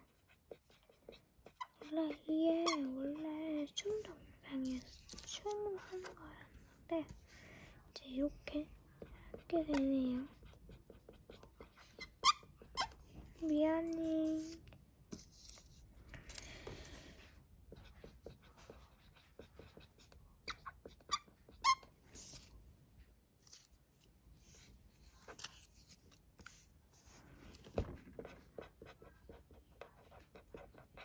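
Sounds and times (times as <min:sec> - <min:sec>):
marker pen scratching on paper: 0:00.0 - 0:07.4, 0:09.0 - 0:22.5, 0:23.4 - 0:31.0
marker tip squeaks: 0:11.9 - 0:13.0, 0:20.4 - 0:22.5.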